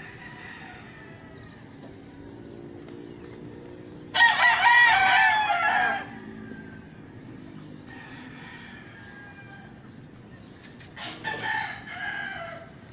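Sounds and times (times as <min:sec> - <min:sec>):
rooster crowing: 0:00.0 - 0:01.4, 0:04.1 - 0:06.8, 0:07.9 - 0:09.8, 0:11.0 - 0:12.8.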